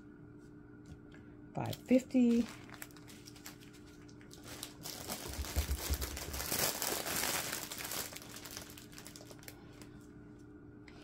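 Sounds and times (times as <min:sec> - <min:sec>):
plastic bags crinkling: 0:01.7 - 0:09.9.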